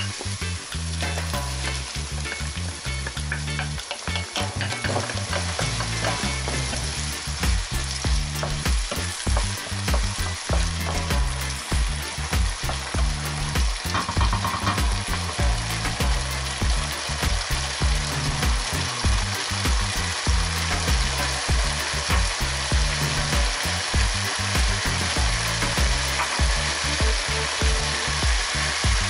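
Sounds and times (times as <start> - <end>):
food sizzling in a frying pan: 0.0 - 29.0
wooden spoon scraping a pan: 3.3 - 7.2, 12.6 - 15.8.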